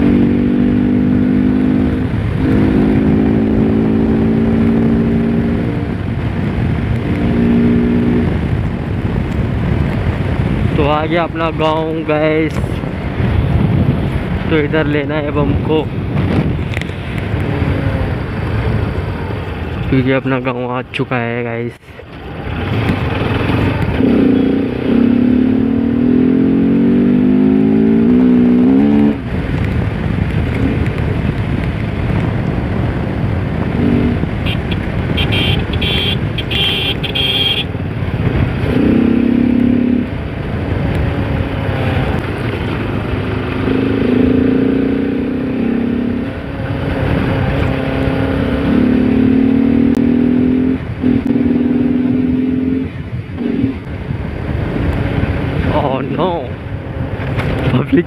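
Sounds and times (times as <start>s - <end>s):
motorcycle engine accelerating: 0.0s - 10.8s, 22.1s - 58.0s
wind on microphone: 0.0s - 20.0s, 22.1s - 58.0s
short horn beeps: 34.5s - 37.7s.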